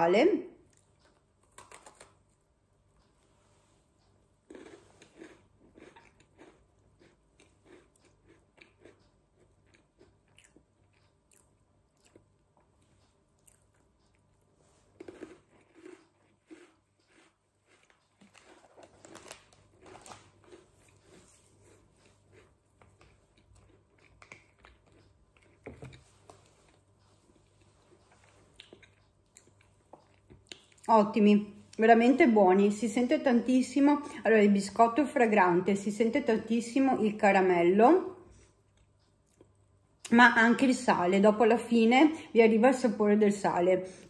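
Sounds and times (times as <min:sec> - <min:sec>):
person chewing biscuit: 0:00.6 - 0:30.9, 0:38.3 - 0:40.1
crisp crunching: 0:14.8 - 0:25.0.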